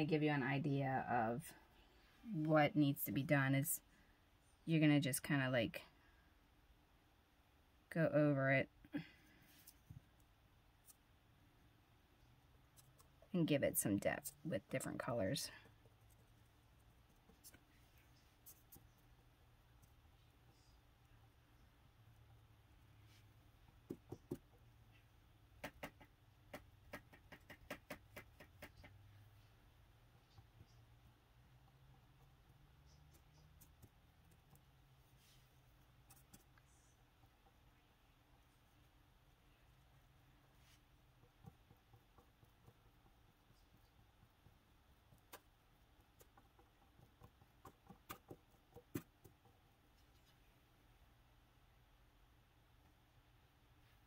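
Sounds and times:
paintbrush tapping: 0:23.7 - 0:29.2, 0:40.8 - 0:50.3.

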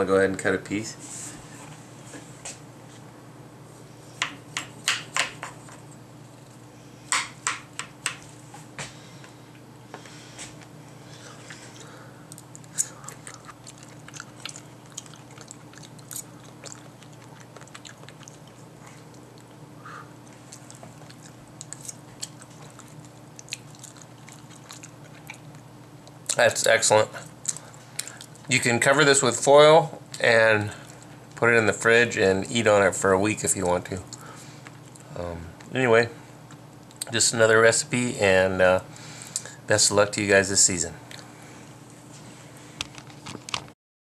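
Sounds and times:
faint steady hum: 0:00.0 - 0:43.7
chewing: 0:11.2 - 0:19.6, 0:20.2 - 0:26.4, 0:27.1 - 0:28.5, 0:34.1 - 0:35.7.

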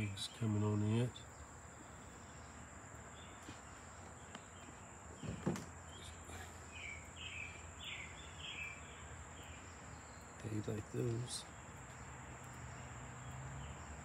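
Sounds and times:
bird chirping: 0:00.0 - 0:14.0
crickets droning: 0:00.0 - 0:14.0
brief thump: 0:05.2 - 0:05.7.

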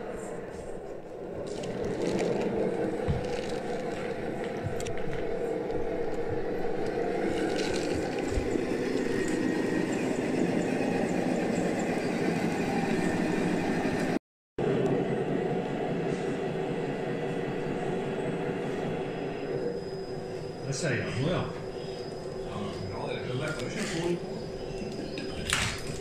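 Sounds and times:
toy truck motor droning: 0:06.2 - 0:12.4.

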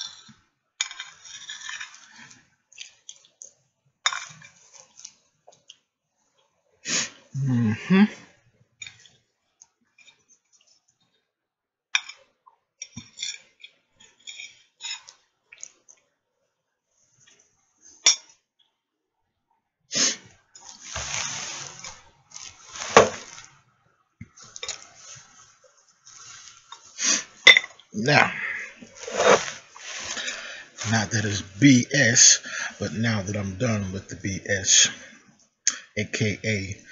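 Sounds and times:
rustling and scraping: 0:20.6 - 0:23.6, 0:24.3 - 0:27.5, 0:28.8 - 0:31.4.

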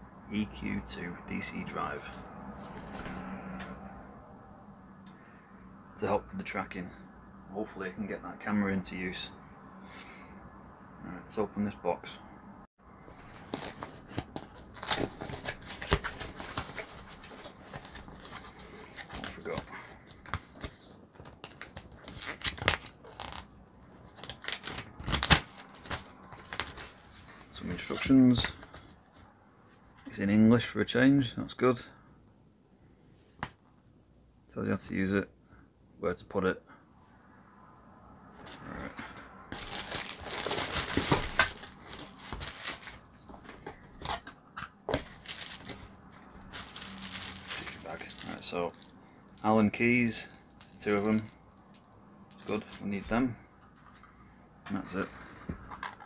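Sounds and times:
paper and cardboard crinkling: 0:13.0 - 0:29.2, 0:38.4 - 0:53.1.

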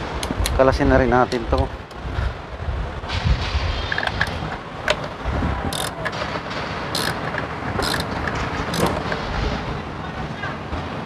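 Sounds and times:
steady low rumble: 0:00.0 - 0:10.1
ratchet wrench clicking: 0:05.7 - 0:06.2, 0:06.9 - 0:09.1.

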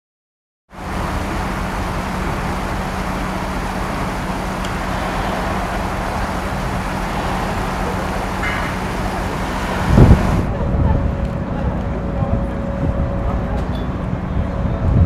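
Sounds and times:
low engine drone: 0:00.7 - 0:15.0
creek water running over rocks: 0:00.8 - 0:10.4.

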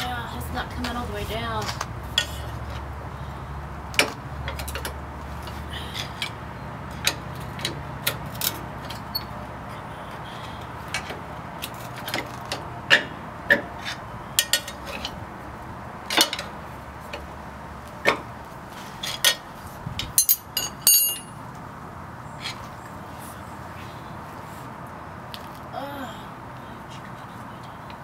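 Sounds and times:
hand tools clinking on metal: 0:20.1 - 0:21.4.

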